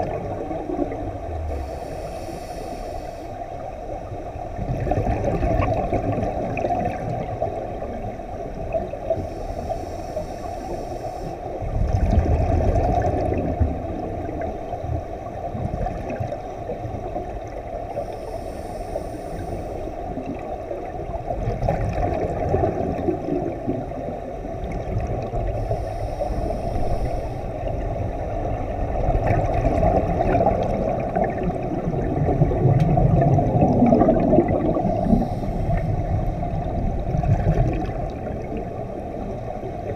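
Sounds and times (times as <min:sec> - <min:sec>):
muffled underwater rumble: 0:00.0 - 0:39.9
faint hiss: 0:00.7 - 0:04.2, 0:08.7 - 0:11.8, 0:17.1 - 0:21.1, 0:23.9 - 0:28.6, 0:34.6 - 0:36.9
air bubbling through water: 0:29.2 - 0:38.6.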